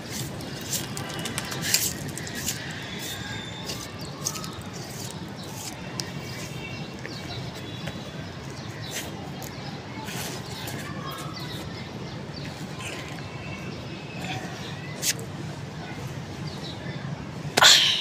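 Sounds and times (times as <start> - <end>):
small birds chirping: 0.0 - 15.2
outdoor background noise: 0.0 - 18.0.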